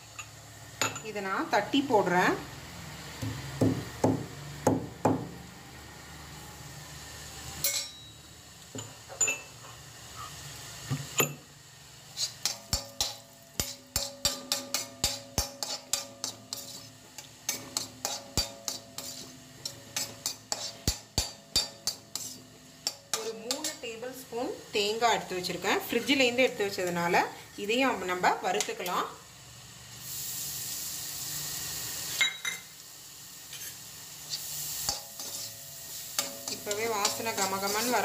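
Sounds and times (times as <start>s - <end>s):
spoon clinking in steel bowl: 7.6s - 8.1s, 8.8s - 9.6s, 32.2s - 32.7s
spoon scraping steel bowl: 12.1s - 23.8s, 33.5s - 35.6s, 36.2s - 38.0s.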